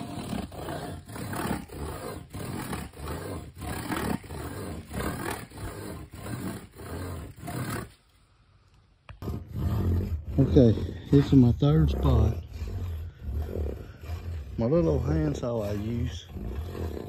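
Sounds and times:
wooden stake rasping strokes: 0.0s - 8.3s, 9.1s - 17.0s.

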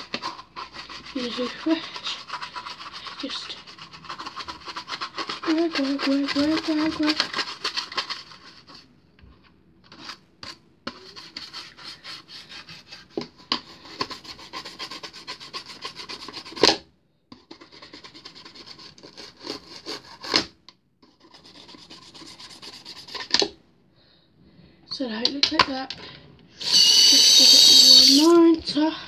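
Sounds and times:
toothbrush scrubbing plastic case: 0.0s - 8.8s, 26.6s - 28.4s.

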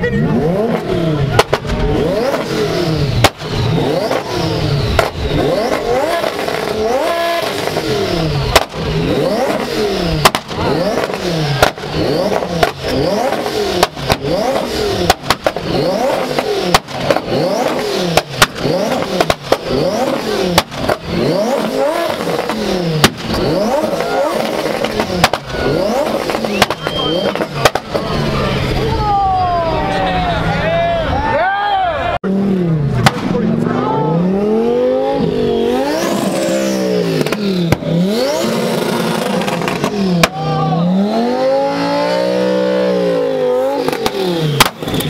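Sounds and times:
car engine revving hard: 0.1s - 29.0s, 32.2s - 45.0s
exhaust pops and bangs: 0.7s - 2.5s, 3.1s - 4.3s, 4.9s - 6.8s, 7.4s - 28.3s, 32.9s - 33.7s, 37.1s - 40.4s, 43.8s - 45.0s.

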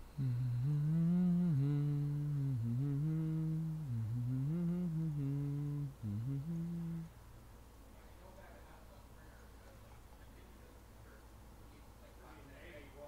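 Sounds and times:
man humming a tune: 0.0s - 7.1s.

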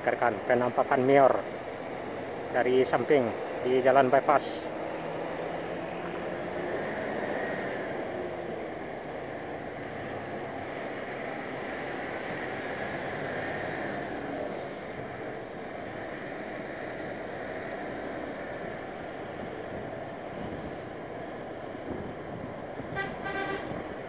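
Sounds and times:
bus engine hum: 0.0s - 24.0s
tyre and wind rush: 12.2s - 24.0s.

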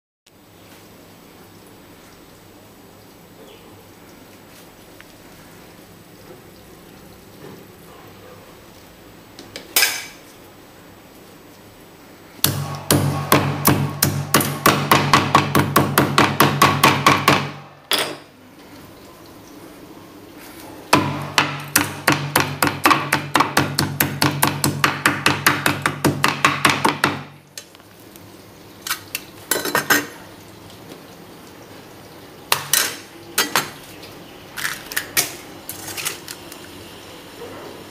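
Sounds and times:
hammer pounding on wooden board: 12.4s - 17.6s, 21.0s - 27.3s.

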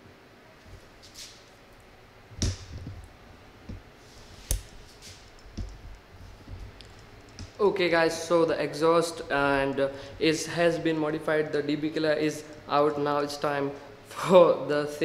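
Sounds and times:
handling taps and thumps: 5.3s - 7.6s.

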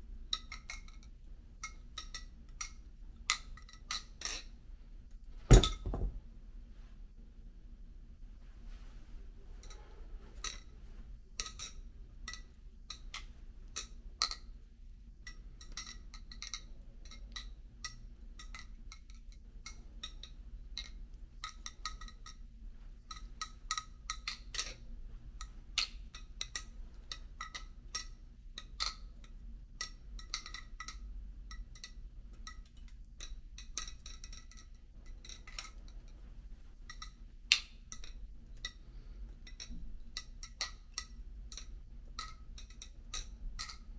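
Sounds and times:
metallic clicks of knife handles: 29.8s - 35.9s, 39.4s - 43.9s.

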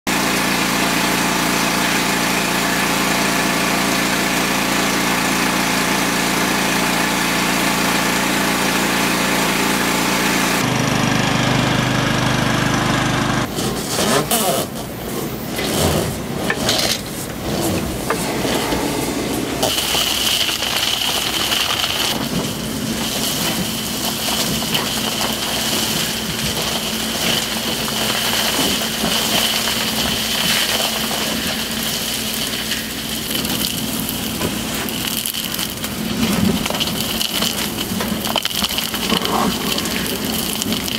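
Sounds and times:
vacuum air rush: 17.1s - 21.0s
high-pitched whine: 17.9s - 20.9s
insulation crackling in hose: 19.6s - 40.9s.

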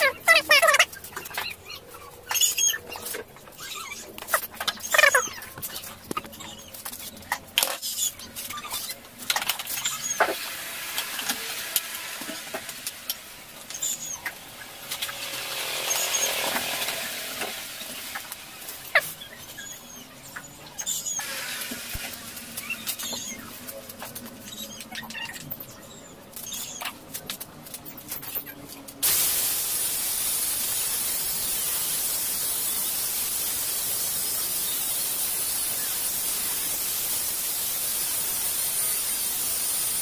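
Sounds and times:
squeaky scrapes: 0.0s - 9.0s
hissing scrape: 13.7s - 19.8s.

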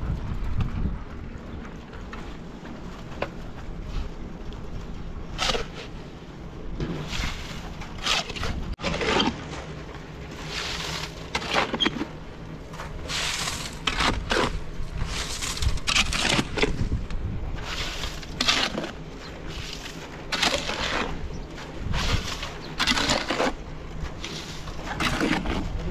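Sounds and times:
shovel scraping wet concrete: 5.3s - 6.0s, 6.8s - 25.9s.

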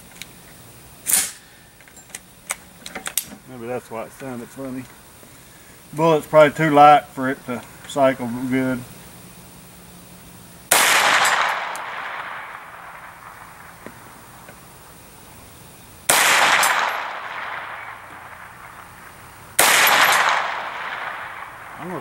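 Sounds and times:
gunshot crack with echo: 10.7s - 13.8s, 16.1s - 18.8s, 19.6s - 22.0s.

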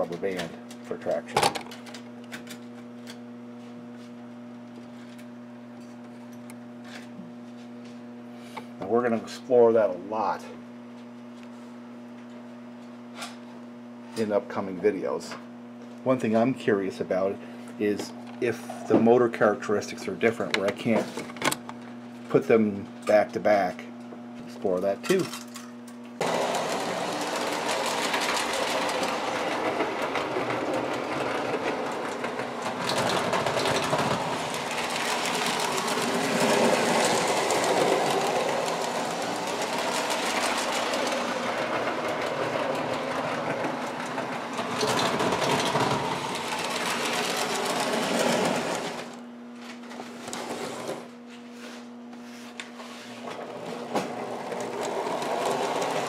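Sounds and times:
steady low hum: 0.0s - 56.0s
toy train motors whirring: 26.2s - 49.2s, 54.0s - 56.0s
wheels clattering over rail joints: 26.2s - 49.2s, 53.3s - 56.0s.

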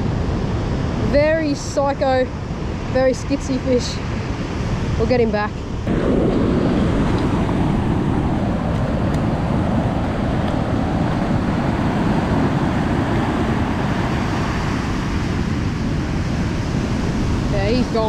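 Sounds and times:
wind on microphone: 0.0s - 18.0s
surf breaking on beach: 5.9s - 18.0s.

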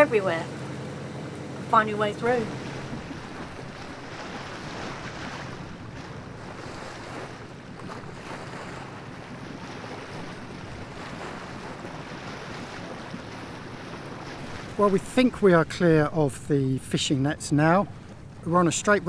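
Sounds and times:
water rushing along hull: 0.0s - 19.0s
wind buffeting microphone: 1.8s - 16.2s.

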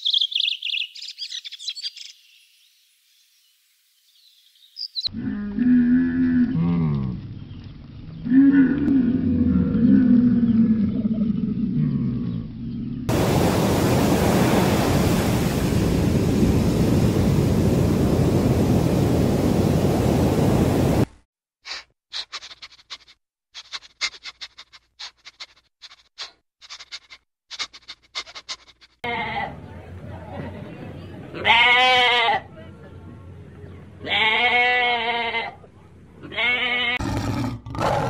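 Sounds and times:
camel grumbling call: 5.1s - 7.2s, 36.3s - 38.0s
loud steady hiss: 13.1s - 21.0s.

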